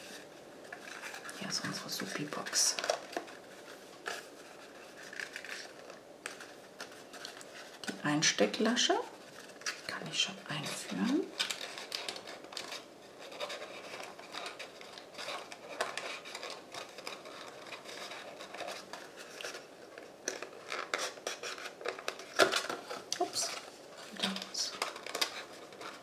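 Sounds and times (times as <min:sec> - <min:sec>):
cardstock rustling and scraping: 0:00.0 - 0:26.0.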